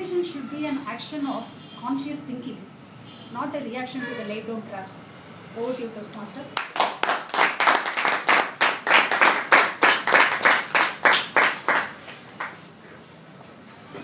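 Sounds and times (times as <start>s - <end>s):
hand clapping: 6.6s - 12.6s.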